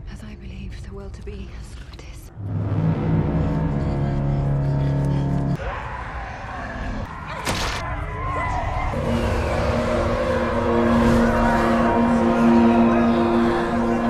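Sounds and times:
low droning chord: 2.3 - 5.6, 9.0 - 14.0
noisy rumble: 2.3 - 5.6, 8.9 - 14.0.

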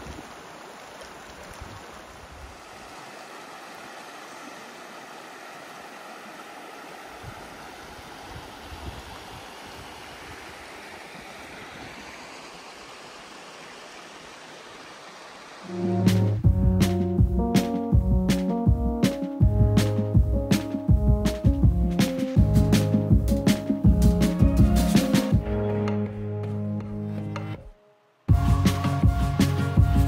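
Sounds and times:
river rushing over stones: 0.0 - 15.8.

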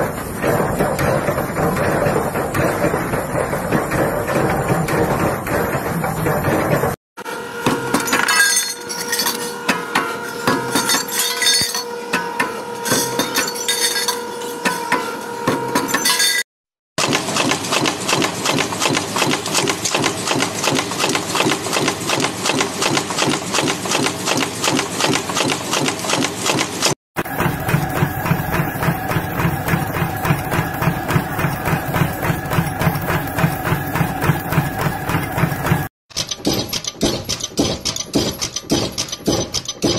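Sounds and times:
metal clanking and clinking: 7.9 - 15.1
machine hum: 27.2 - 35.9
punch press stamping: 27.2 - 39.9.

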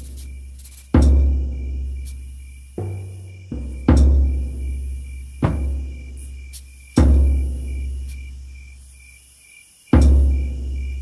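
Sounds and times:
frame drum deep booms: 0.9 - 8.1, 10.0 - 11.0.

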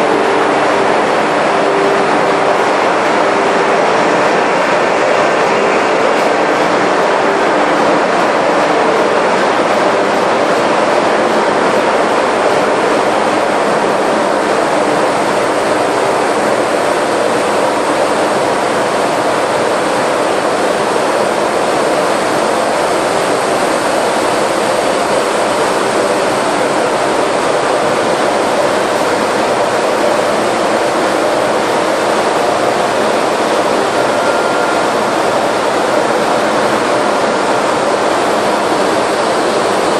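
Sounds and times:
engine room machinery din: 0.0 - 39.9
faint high whine: 32.3 - 39.7.

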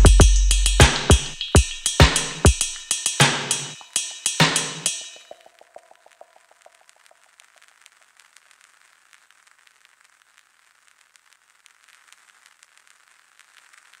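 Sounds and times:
steady hiss: 0.0 - 5.7
vinyl crackle: 5.0 - 14.0.

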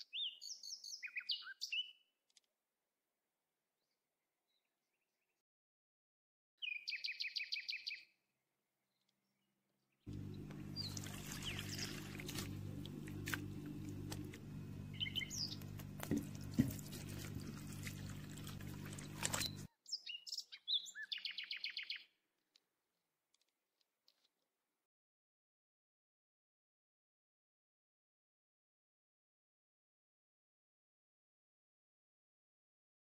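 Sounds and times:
small birds chirping: 0.0 - 2.1, 6.6 - 8.2, 8.9 - 22.2
water pouring and splashing: 10.1 - 14.5, 15.6 - 19.7
low hum: 10.1 - 19.7.

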